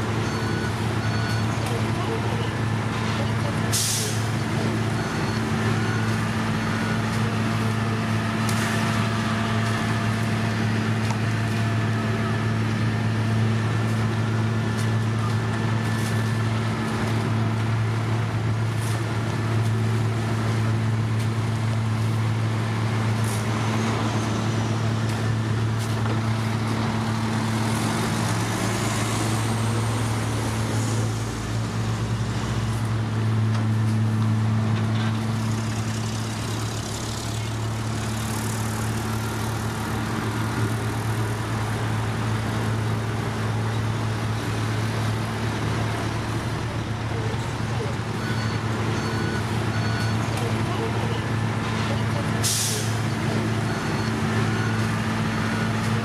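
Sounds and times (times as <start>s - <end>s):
heavy diesel engines humming: 0.0s - 56.0s.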